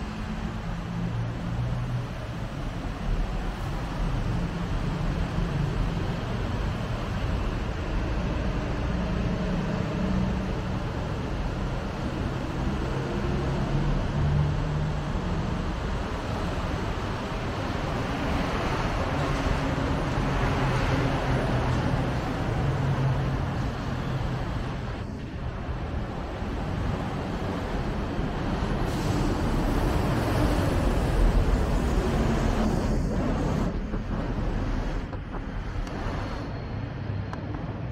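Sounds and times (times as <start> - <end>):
traffic passing: 0.0 - 37.9.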